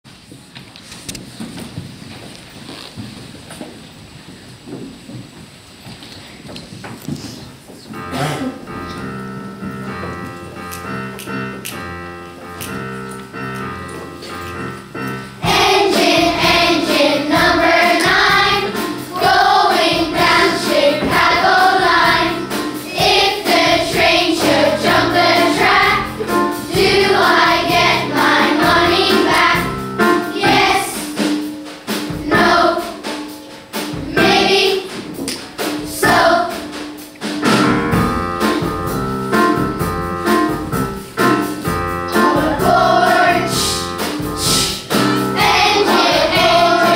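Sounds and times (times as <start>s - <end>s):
piano accompaniment: 7.4s - 46.9s
children's choir singing: 14.4s - 37.0s, 42.1s - 46.9s.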